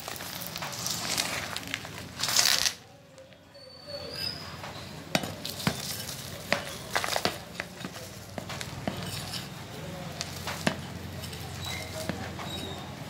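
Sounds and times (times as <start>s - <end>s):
clumps clattering on concrete: 0.0s - 2.8s, 5.1s - 12.8s
soil spilling: 0.0s - 2.8s.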